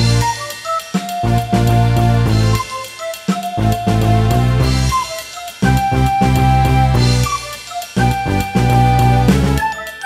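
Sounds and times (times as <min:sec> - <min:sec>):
music with bass and beat: 0:00.0 - 0:10.0.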